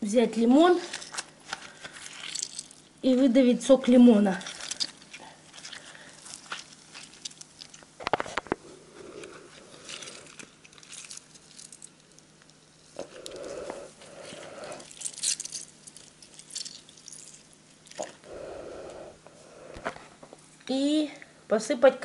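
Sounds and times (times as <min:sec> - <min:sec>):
lemon squelching in hands: 0:04.2 - 0:08.0, 0:09.1 - 0:18.2.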